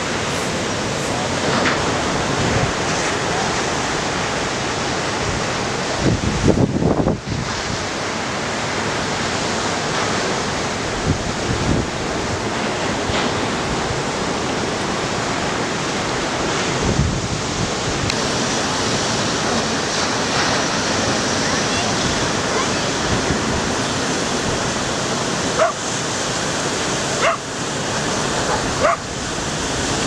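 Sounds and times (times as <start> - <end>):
ocean surf breaking on rocks: 0.0 - 30.0
wind buffeting microphone: 0.0 - 30.0.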